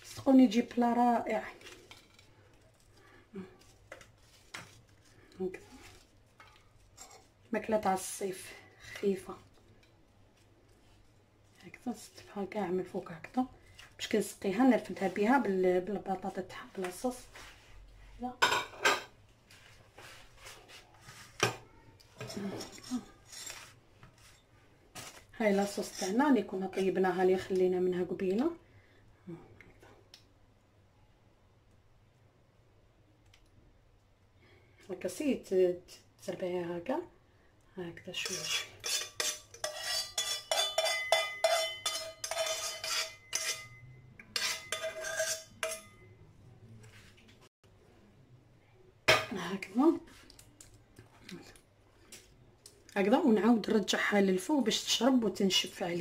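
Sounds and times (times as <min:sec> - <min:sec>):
spoon clinking in saucepan: 0:38.4 - 0:46.1.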